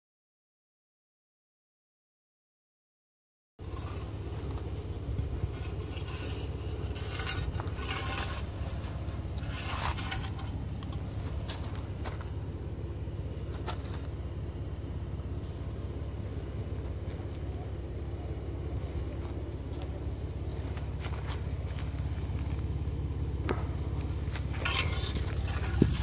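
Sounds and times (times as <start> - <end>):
footsteps on gravel: 3.6 - 12.5, 19.0 - 22.8, 23.4 - 26.0
car engine idling: 3.6 - 26.0.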